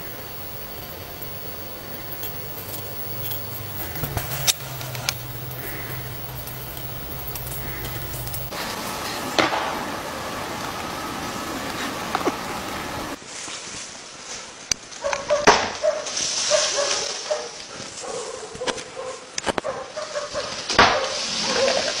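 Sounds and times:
horns clashing: 0:00.0 - 0:13.2.

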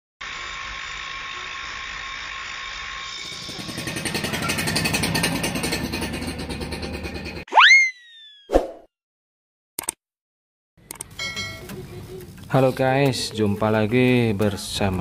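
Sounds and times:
angle grinder whining on steel: 0:00.2 - 0:07.4
scooter engine puttering: 0:03.1 - 0:07.5
whistle-like pitch sweep: 0:07.5 - 0:08.8.

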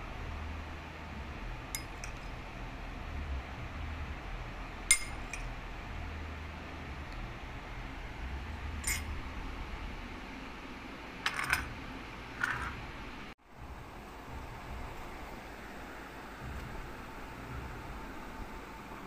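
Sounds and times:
low hum: 0:00.0 - 0:19.0
glassware clinking: 0:04.9 - 0:05.5, 0:08.8 - 0:09.1.

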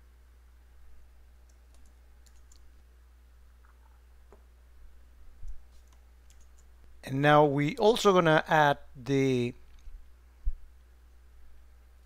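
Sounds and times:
low electrical hum: 0:00.0 - 0:12.0
faint computer clicks: 0:01.4 - 0:02.8.

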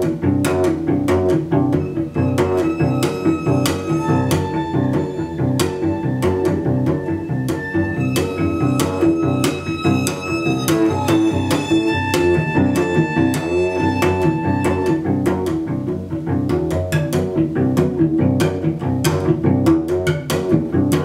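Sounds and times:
cello bowed in short sharp notes: 0:01.8 - 0:15.2.

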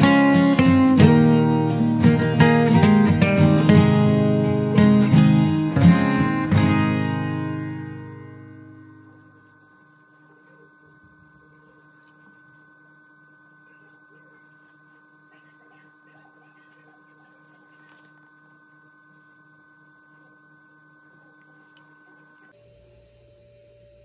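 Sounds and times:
faint steady hum: 0:00.0 - 0:24.0
faint soft scratches: 0:13.6 - 0:18.4.

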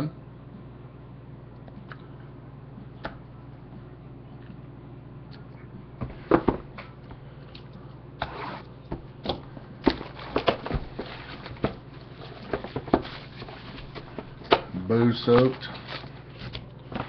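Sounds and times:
low steady hum: 0:00.0 - 0:17.0
boxes tapping and knocking: 0:08.9 - 0:14.7.

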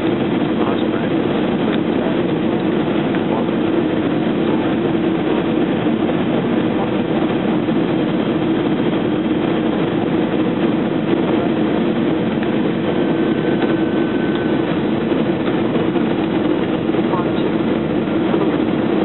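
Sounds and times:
aircraft cabin engine and airflow drone: 0:00.0 - 0:19.0.

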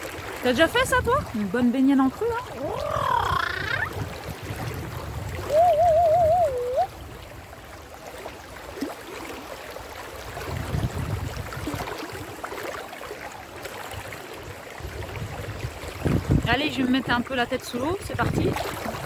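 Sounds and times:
wind buffeting microphone: 0:00.0 - 0:07.7, 0:10.2 - 0:12.4, 0:14.0 - 0:19.0
river rushing: 0:00.0 - 0:10.6
woman saying ooh: 0:02.3 - 0:04.0, 0:05.4 - 0:06.9.

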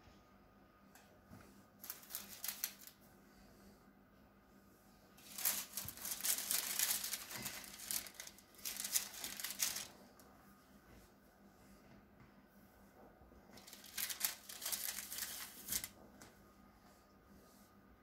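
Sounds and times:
baking paper crinkling: 0:01.8 - 0:03.0, 0:05.2 - 0:10.0, 0:13.6 - 0:16.0.

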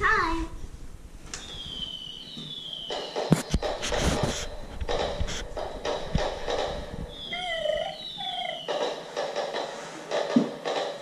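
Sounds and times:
high falling whistles: 0:01.4 - 0:03.6, 0:07.1 - 0:08.8.

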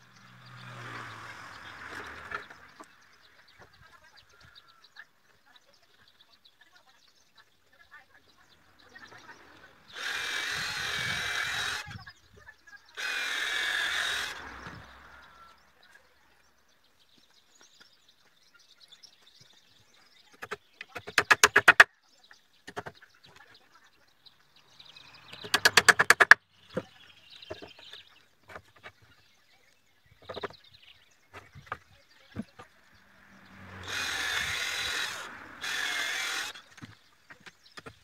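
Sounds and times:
drill clutch clicking: 0:09.9 - 0:11.9, 0:13.0 - 0:14.4, 0:25.4 - 0:26.4, 0:33.8 - 0:36.6
cordless drill motor: 0:09.9 - 0:12.0, 0:13.0 - 0:15.4, 0:33.6 - 0:36.7.

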